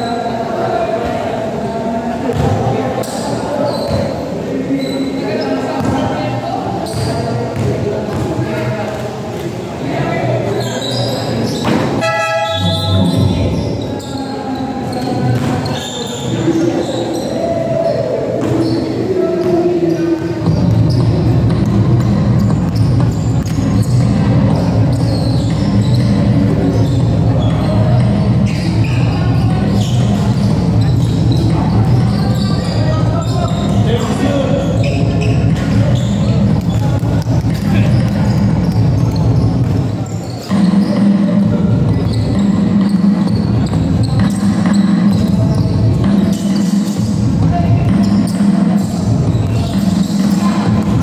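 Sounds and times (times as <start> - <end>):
sneaker squeaks: 2.3 - 8.3, 10.5 - 51.0
steady low din: 12.2 - 13.8, 20.4 - 51.0
basketball dribbling: 20.4 - 51.0.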